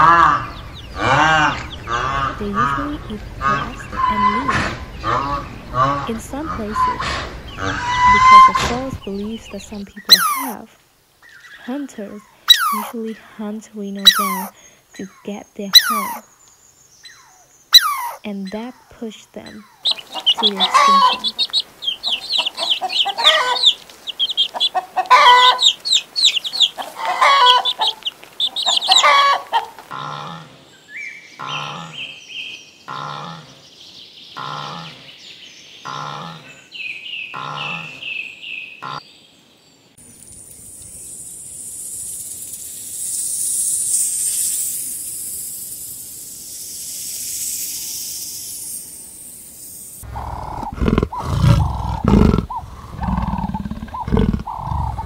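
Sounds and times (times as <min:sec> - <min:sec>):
chicks peeping: 0:00.0 - 0:10.6, 0:19.5 - 0:29.9
hen clucking: 0:00.0 - 0:10.6, 0:12.5 - 0:13.0, 0:13.9 - 0:14.5, 0:15.6 - 0:16.2, 0:17.8 - 0:18.7, 0:19.4 - 0:30.5, 0:50.0 - 0:55.0
evenly spaced calls: 0:00.0 - 0:16.4, 0:17.0 - 0:30.6, 0:47.3 - 0:55.0
steady high hiss: 0:08.7 - 0:17.8, 0:18.6 - 0:29.9, 0:39.6 - 0:55.0
big cat growling: 0:50.0 - 0:55.0.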